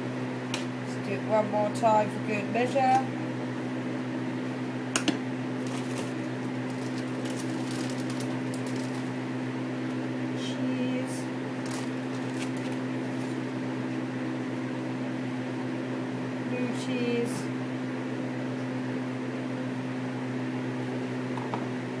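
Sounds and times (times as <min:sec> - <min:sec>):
machine humming: 0:00.0 - 0:17.8
plastic bag crinkling: 0:05.6 - 0:09.2, 0:11.6 - 0:13.5.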